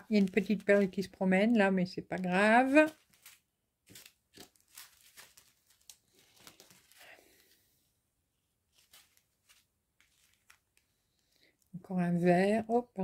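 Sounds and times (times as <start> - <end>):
plastic bags crinkling: 0.0 - 1.2, 2.0 - 7.6, 8.7 - 11.6.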